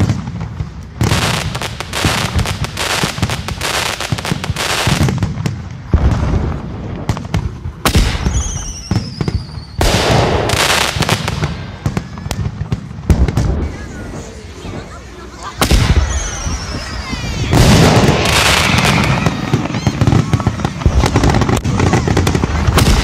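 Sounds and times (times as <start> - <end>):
fireworks bursting and crackling: 0.0 - 23.0
whistling rocket: 5.9 - 14.9, 15.6 - 23.0.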